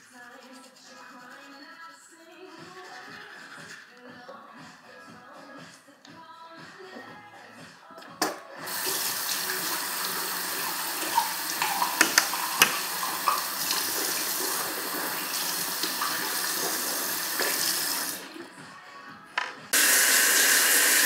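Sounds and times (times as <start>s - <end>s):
tap running into a sink: 8.7s - 18.2s.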